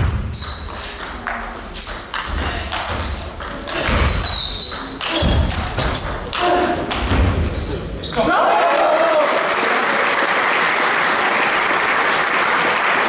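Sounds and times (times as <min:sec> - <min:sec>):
thumps: 0:00.0 - 0:08.2
crowd shouting and cheering: 0:08.0 - 0:13.0
clapping: 0:08.5 - 0:13.0.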